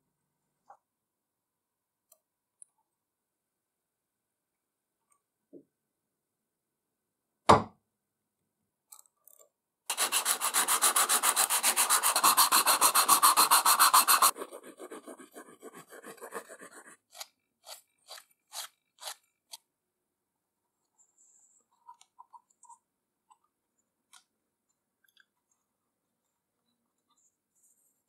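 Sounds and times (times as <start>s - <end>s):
sandpaper sanding metal: 9.9s - 17.0s.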